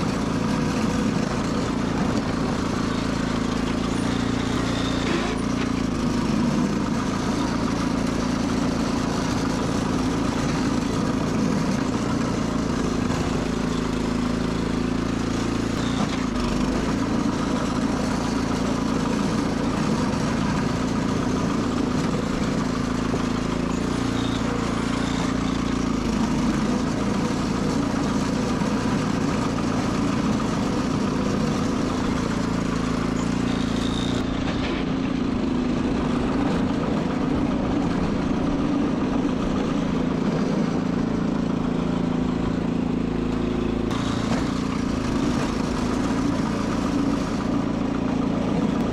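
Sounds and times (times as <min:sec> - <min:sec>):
garden tractor engine running: 0:00.0 - 0:48.9.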